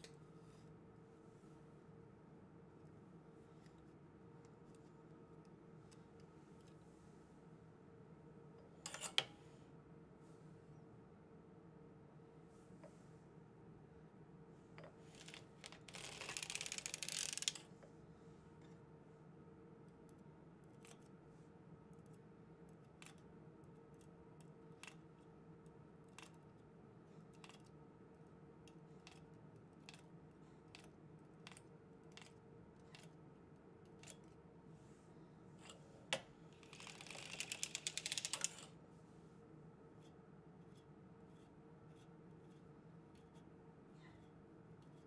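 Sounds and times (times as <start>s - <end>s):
metal needles clicking: 15.2s - 17.6s, 36.6s - 38.7s.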